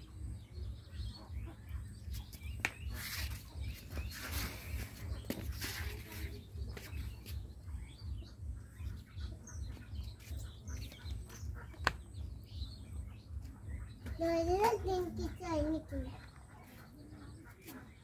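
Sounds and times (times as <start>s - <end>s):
small birds chirping: 0.0s - 18.0s
low fast-pulsing hum: 5.8s - 11.6s.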